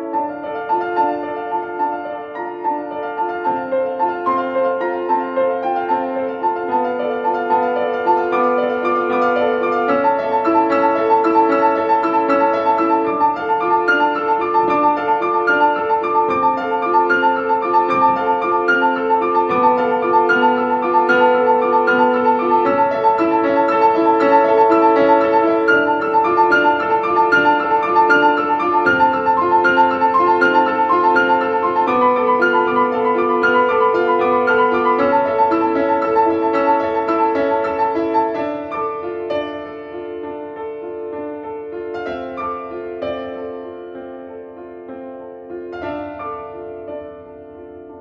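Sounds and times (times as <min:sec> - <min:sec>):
piano music: 0:00.0 - 0:48.0.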